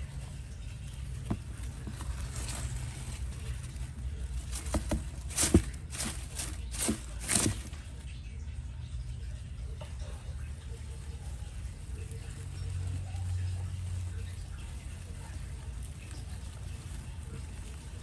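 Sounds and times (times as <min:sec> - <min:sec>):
animals rustling in wood shavings: 0:00.0 - 0:08.2, 0:09.9 - 0:18.0.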